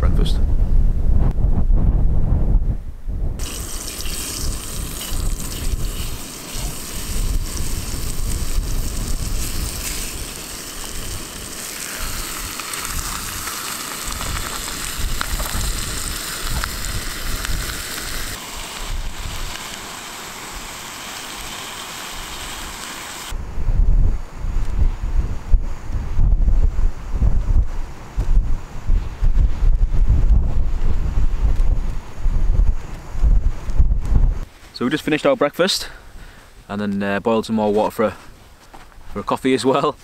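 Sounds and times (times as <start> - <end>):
bacon sizzling in a frying pan: 3.4 - 23.3.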